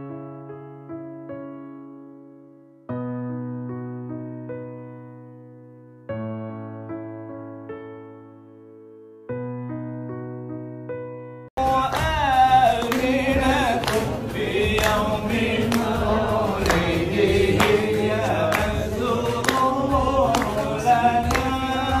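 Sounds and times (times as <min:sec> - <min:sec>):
group singing in unison: 0:11.6 - 0:22.0
struck percussion beat: 0:11.6 - 0:22.0.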